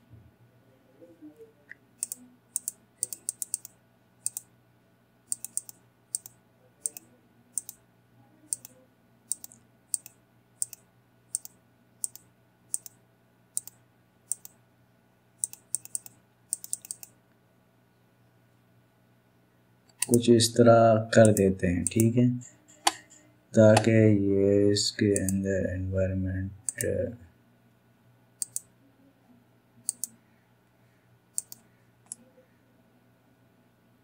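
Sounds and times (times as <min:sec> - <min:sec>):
faint steady hum: 0:00.0 - 0:34.0
computer mouse clicking: 0:01.7 - 0:04.5, 0:05.3 - 0:07.8, 0:08.5 - 0:13.0, 0:13.6 - 0:14.6, 0:15.4 - 0:17.2, 0:19.9 - 0:20.2, 0:21.2 - 0:22.1, 0:25.1 - 0:25.4, 0:26.6 - 0:26.9, 0:28.4 - 0:28.7, 0:29.8 - 0:30.2, 0:31.3 - 0:32.3.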